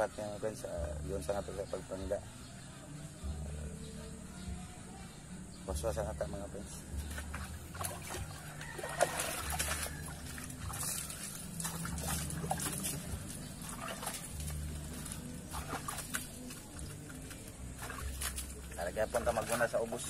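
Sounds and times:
water splashing: 6.9 - 20.0.

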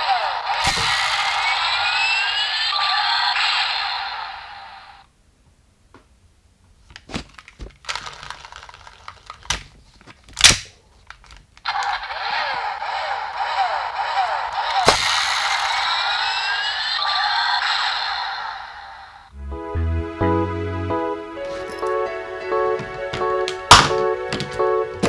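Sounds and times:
toy electronic sound effect: 0.0 - 4.1, 11.7 - 18.7
toy voice call: 0.0 - 4.9, 11.7 - 19.2
plastic toy clicks and clacks: 7.3 - 9.7, 10.4 - 15.8
synthesized tones and falling chirps: 15.0 - 18.1.

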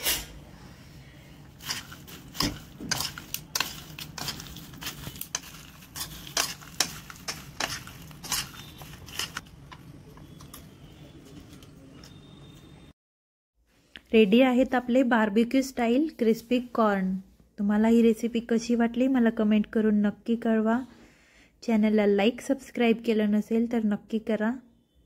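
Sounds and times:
spoons clinking and scraping in bowl: 1.6 - 9.5.

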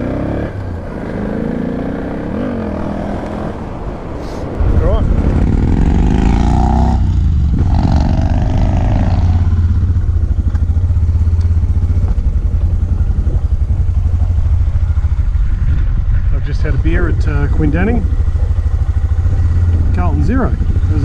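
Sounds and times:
motorcycle engine throbbing: 4.6 - 21.0.

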